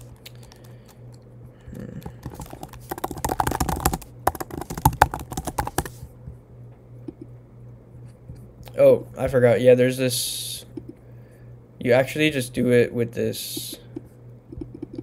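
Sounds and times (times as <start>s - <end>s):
computer keyboard typing: 0.0s - 1.0s, 1.9s - 6.0s.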